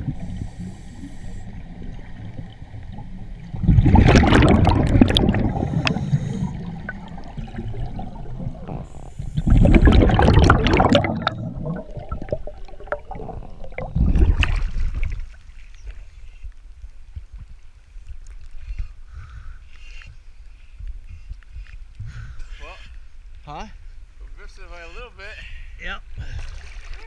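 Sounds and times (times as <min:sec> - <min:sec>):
exhaled bubbles underwater: 0:00.0 - 0:15.4
regulator inhale hiss: 0:00.1 - 0:01.6, 0:05.5 - 0:06.7.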